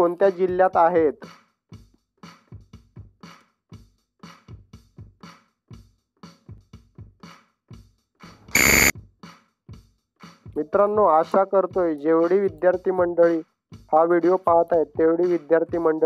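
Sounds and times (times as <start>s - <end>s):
bright electronic tone: 8.5s - 8.9s
electronic ticking clicks: 8.5s - 8.9s.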